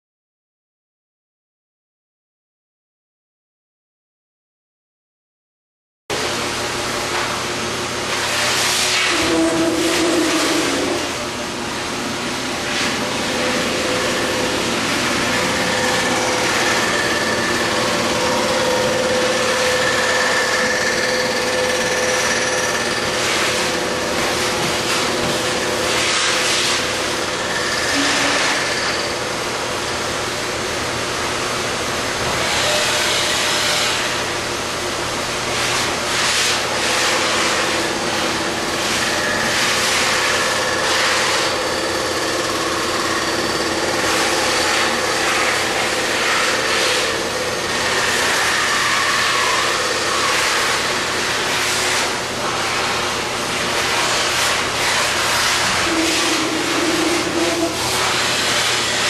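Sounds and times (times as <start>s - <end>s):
milling machine cutter whining: 9.1s - 30.1s, 36.6s - 52.4s, 53.0s - 59.0s.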